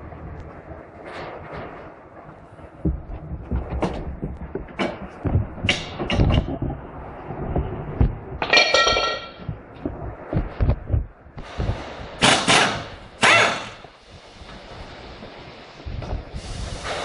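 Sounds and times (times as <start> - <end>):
metal parts clanking: 8.4 - 9.5
metallic clang: 8.4 - 9.5
hissing bursts: 10.1 - 17.0.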